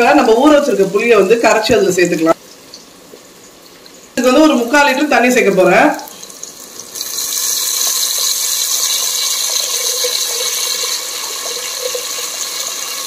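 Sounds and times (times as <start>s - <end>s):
liquid sizzling in hot oil: 5.7s - 13.0s.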